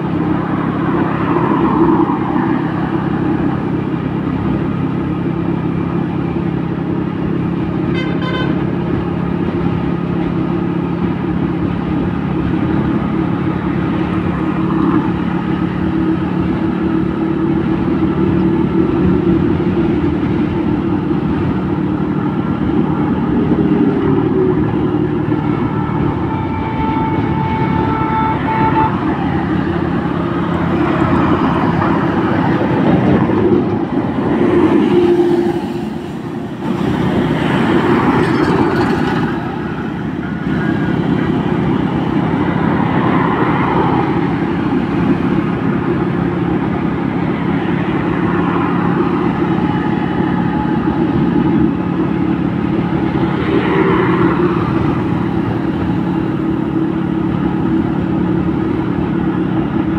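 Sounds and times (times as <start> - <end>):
vehicle engine and road noise: 0.0 - 59.9
car horn: 7.9 - 8.7, 25.2 - 30.4.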